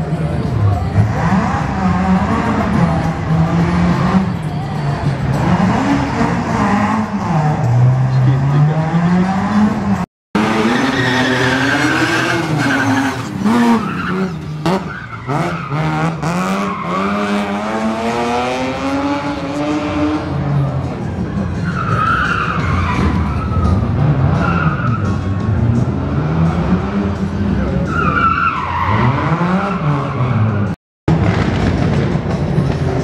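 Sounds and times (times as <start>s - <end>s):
rally car engine revving: 0.0s - 33.0s
tyres squealing: 10.4s - 16.0s.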